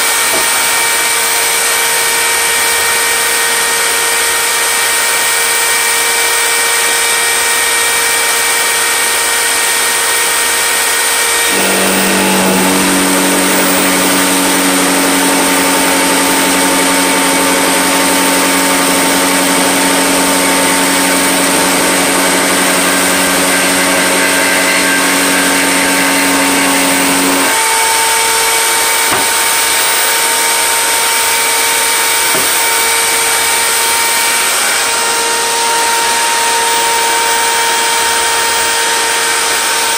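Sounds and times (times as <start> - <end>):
router motor whine: 0.0 - 39.9
deep lower-pitched hum: 11.4 - 27.5.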